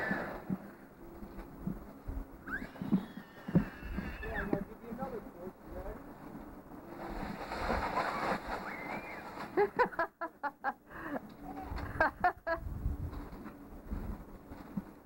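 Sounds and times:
sled scraping over snow: 0.0 - 10.3.

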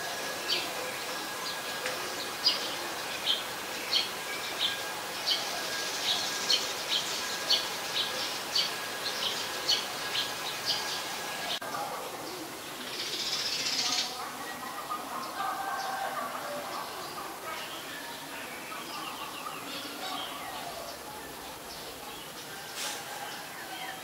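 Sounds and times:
sparrow chirping: 0.5 - 11.6.

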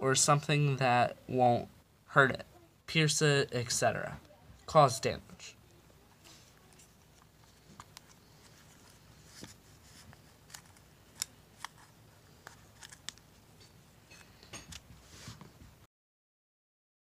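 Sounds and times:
ear pad clicks and creaks: 8.8 - 13.3.

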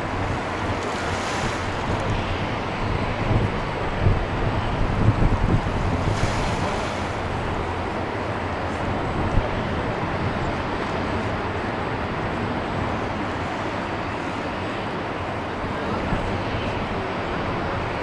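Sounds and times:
wind buffeting microphone: 0.0 - 13.2.

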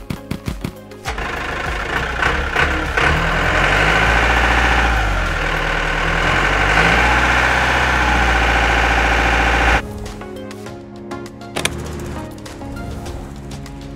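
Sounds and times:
tractor engine running: 1.0 - 9.8, 11.6 - 12.5.

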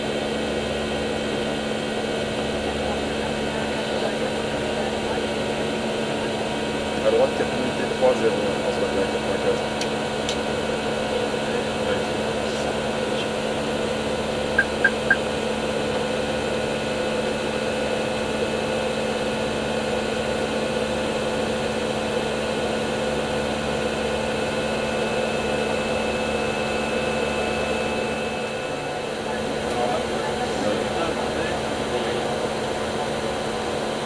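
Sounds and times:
cockpit airflow hum: 0.0 - 20.4
short high beeps: 14.6 - 15.2.

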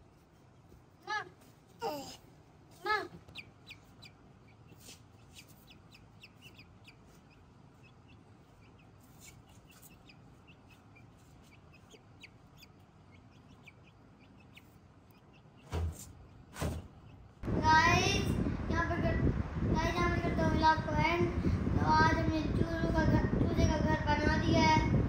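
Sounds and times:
faint high-pitched chick peeps: 1.0 - 17.4
chick pecking at grain: 3.2 - 17.2.

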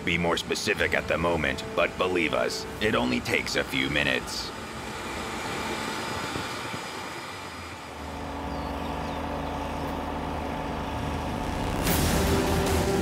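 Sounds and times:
vehicle engine rumble: 0.0 - 13.0
music: 11.1 - 13.0.

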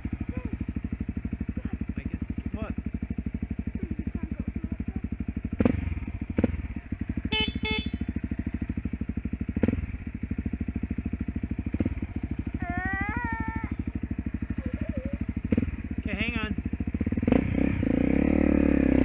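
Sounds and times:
dirt bike engine running: 0.0 - 19.0.

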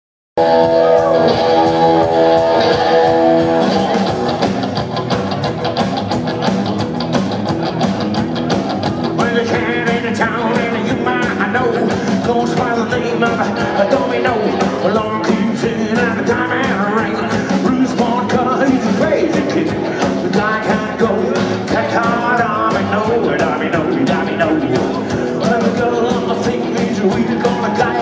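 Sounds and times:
rockabilly band playing: 0.4 - 28.0
man singing: 9.1 - 28.0.

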